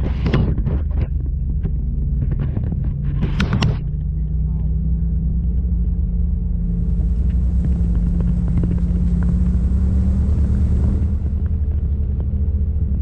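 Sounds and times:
utility vehicle engine running: 0.0s - 13.0s.

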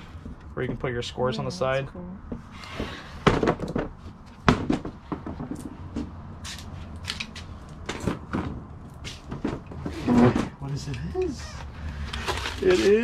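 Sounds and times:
rustling of handled things: 2.4s - 13.0s.

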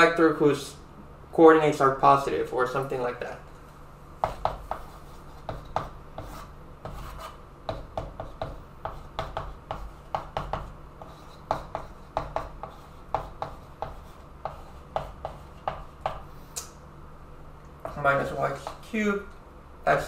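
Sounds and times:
chalk tapping and scraping: 4.2s - 16.7s, 17.8s - 19.0s.

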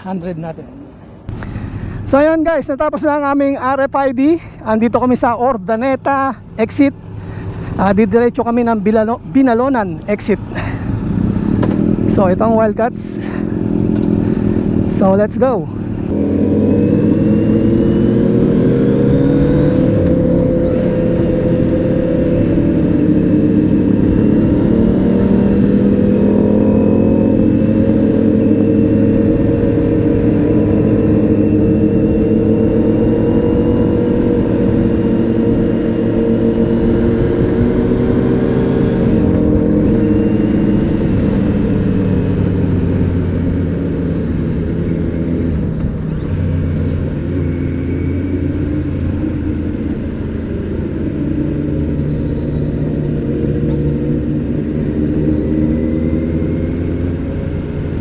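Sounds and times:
motorcycle engine accelerating: 7.1s - 58.0s.

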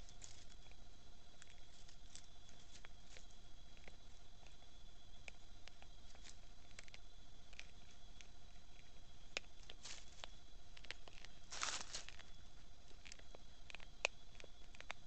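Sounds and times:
animal chewing and crunching: 0.0s - 15.0s
faint electronic whine: 0.0s - 15.0s
rustle in dry leaves: 9.6s - 12.3s.

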